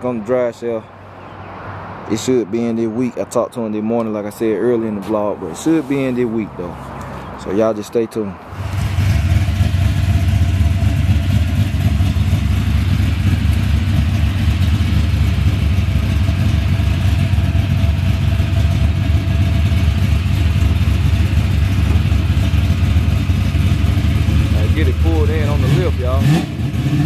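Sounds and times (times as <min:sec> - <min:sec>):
car engine idling: 0:08.5 - 0:27.0.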